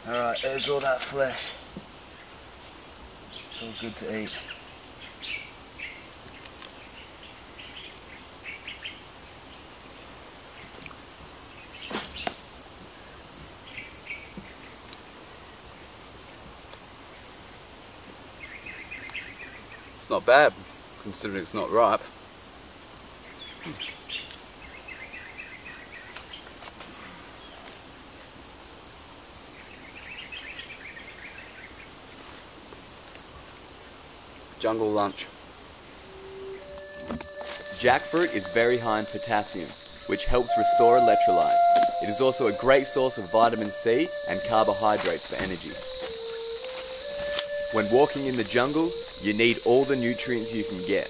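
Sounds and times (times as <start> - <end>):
high-pitched insect whine: 0.0 - 26.4, 28.6 - 51.0
high-pitched insect drone: 34.8 - 51.0
bird chirps: 36.1 - 51.0.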